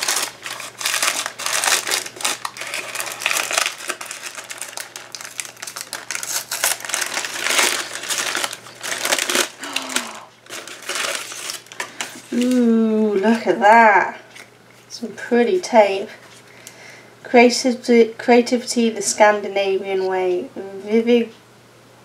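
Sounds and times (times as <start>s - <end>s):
tissue paper crinkling: 0.0s - 13.4s.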